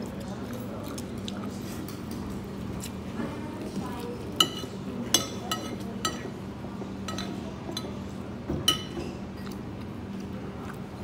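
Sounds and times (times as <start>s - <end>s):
tableware clinking: 8.6s - 9.2s.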